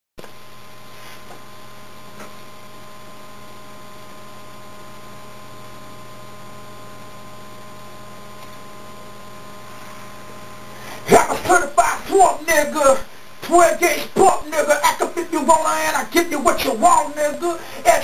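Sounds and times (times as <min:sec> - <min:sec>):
electrical mains hum: 0:00.2 - 0:18.0
recording hiss: 0:09.6 - 0:18.0.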